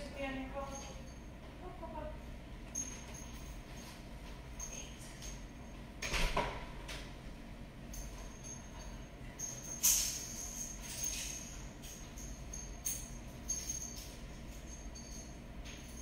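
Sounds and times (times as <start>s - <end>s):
light clinks: 2.7s - 5.8s, 7.9s - 16.0s.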